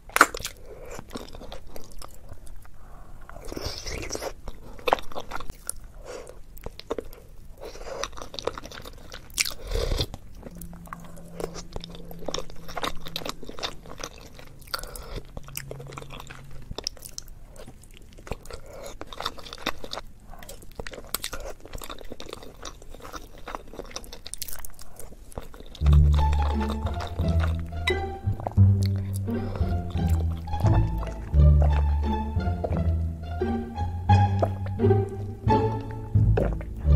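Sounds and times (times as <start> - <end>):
wet chewing and mouth smacks: 0.0 - 32.9, 36.2 - 36.8.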